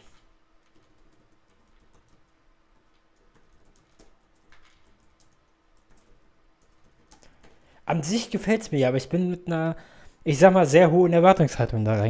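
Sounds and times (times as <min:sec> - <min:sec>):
keyboard typing: 0:00.0 - 0:07.7.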